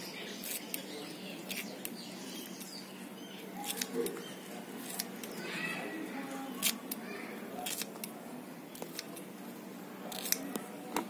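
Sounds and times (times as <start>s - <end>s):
scissors snipping banana peel: 1.5s - 2.0s, 3.6s - 4.2s, 4.8s - 5.4s, 6.6s - 7.0s, 7.6s - 8.2s, 8.8s - 9.2s, 10.1s - 10.7s.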